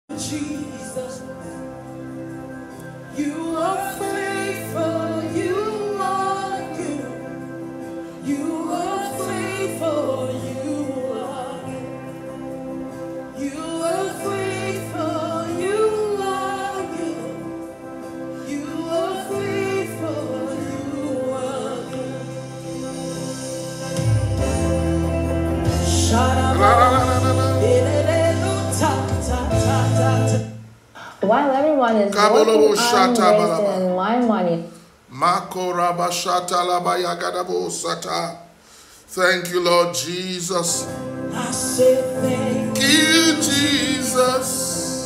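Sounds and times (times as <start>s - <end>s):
person singing: 0.1s - 1.7s, 3.1s - 7.5s, 8.2s - 12.3s, 13.3s - 22.6s, 25.7s - 30.5s, 32.2s - 33.8s, 39.7s - 45.0s
held chords: 23.8s - 30.3s.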